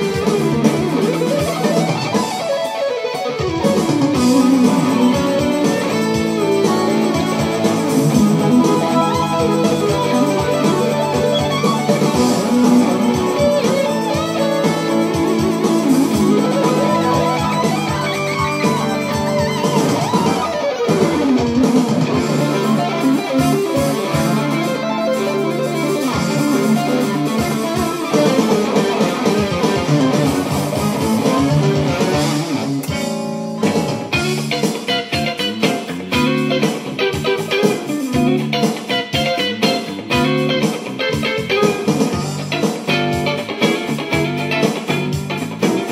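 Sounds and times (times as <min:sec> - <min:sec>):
electric guitar lead runs: 0:00.0 - 0:45.9.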